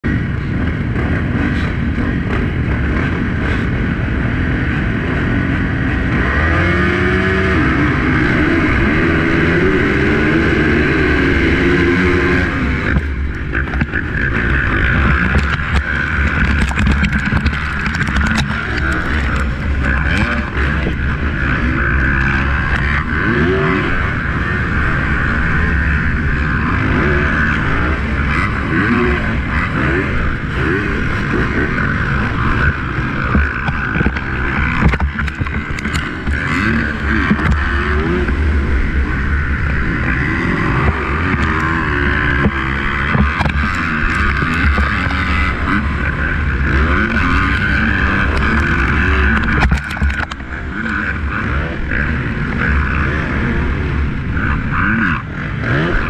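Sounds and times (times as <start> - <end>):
dirt bike engine revving: 0.0 - 56.0
other dirt bikes running: 0.0 - 56.0
sharp knocks and ticks: 12.9 - 21.0, 32.6 - 38.4, 40.8 - 45.5, 47.0 - 51.0.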